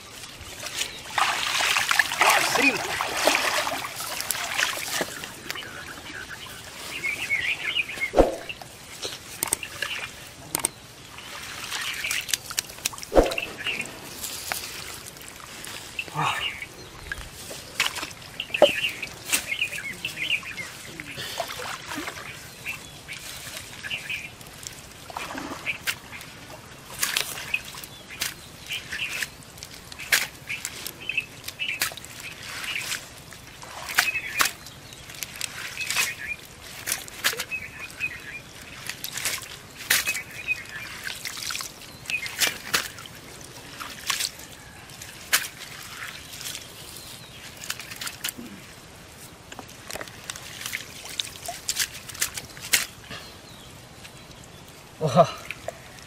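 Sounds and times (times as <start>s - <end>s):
water trickling and dripping: 0.0s - 56.0s
small splashes: 0.1s - 5.6s, 8.1s - 16.6s, 17.4s - 53.1s
bird calls: 4.9s - 12.4s, 13.1s - 14.1s, 15.9s - 24.4s, 33.7s - 36.5s, 37.2s - 41.2s.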